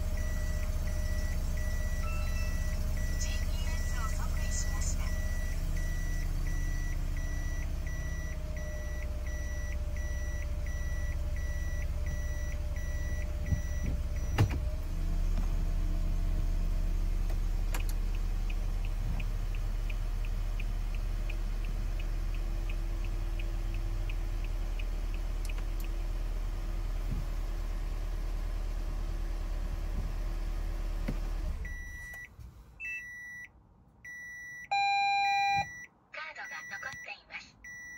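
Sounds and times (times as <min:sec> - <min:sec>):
car engine idling: 0:00.0 - 0:32.7
reverse warning buzzer beeping: 0:00.2 - 0:14.5, 0:34.1 - 0:37.9
gear shifter clunk: 0:13.2 - 0:14.7
turn signal relay ticking: 0:17.3 - 0:26.0.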